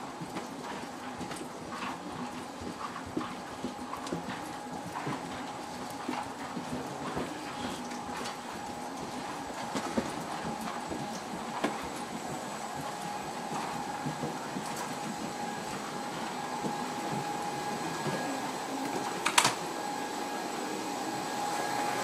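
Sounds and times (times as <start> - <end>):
cabin air system hiss and whine: 0.0 - 22.0
footsteps and bag knocks: 2.6 - 18.2.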